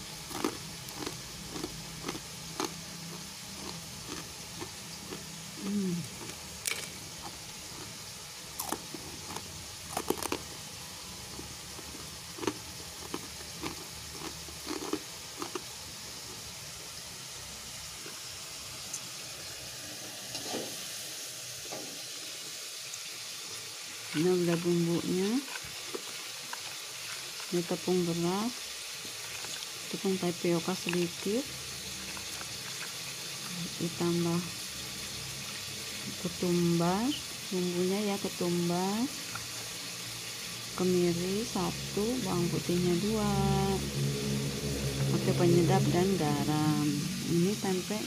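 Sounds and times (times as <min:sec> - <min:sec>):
fried food crunching: 0:00.0 - 0:16.5, 0:22.9 - 0:34.9.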